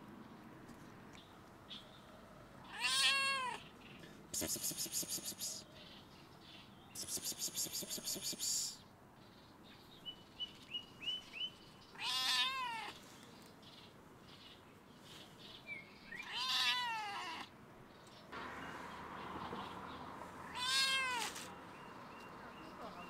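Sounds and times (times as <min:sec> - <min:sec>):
cat meowing: 0:02.7 - 0:03.6, 0:12.0 - 0:13.0, 0:16.2 - 0:17.5, 0:20.5 - 0:21.5.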